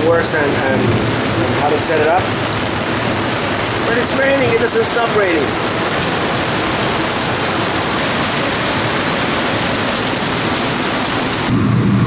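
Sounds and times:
heavy rain pouring: 0:00.0 - 0:11.6.

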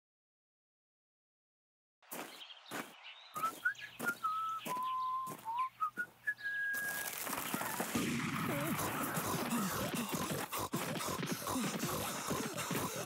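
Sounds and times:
footsteps: 0:02.1 - 0:13.0
person whistling a tune: 0:03.4 - 0:07.1.

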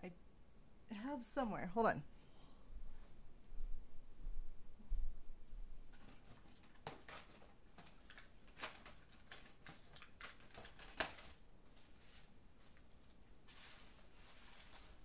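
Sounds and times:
small items clicking and rustling: 0:05.9 - 0:11.4.

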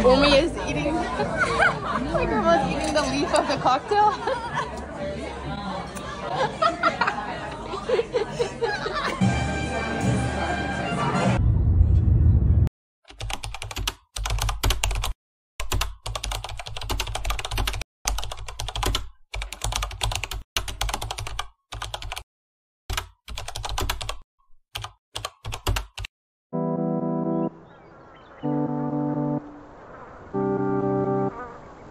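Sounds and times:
music with held notes: 0:09.2 - 0:11.4, 0:28.5 - 0:29.4
keyboard typing: 0:13.1 - 0:22.2, 0:22.9 - 0:24.2, 0:24.8 - 0:26.1.

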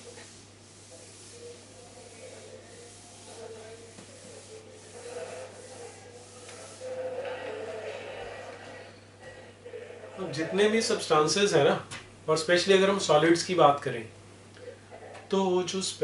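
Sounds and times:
cloth scrubbing whiteboard: 0:00.0 - 0:11.1.

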